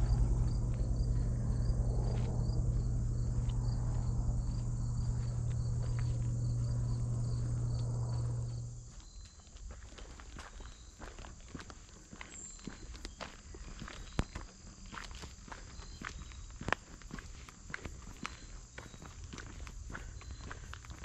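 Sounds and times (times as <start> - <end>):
steady low hum: 0.0 - 11.8
crickets chirping: 0.0 - 21.0.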